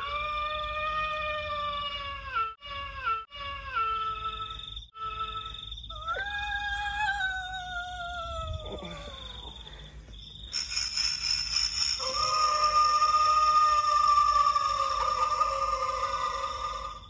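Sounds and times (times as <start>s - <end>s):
shrill high tone: 11.4s - 17.0s
ghost voice wail: 12.0s - 17.0s.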